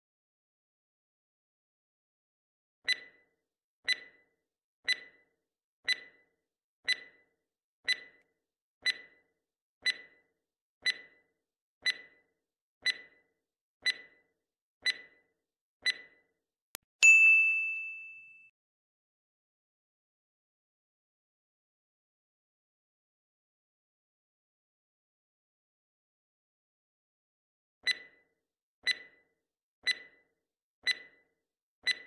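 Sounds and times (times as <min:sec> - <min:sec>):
countdown timer ticks: 0:02.9 - 0:03.3, 0:03.9 - 0:16.3, 0:27.8 - 0:32.0
bright ding: 0:17.0 - 0:18.5.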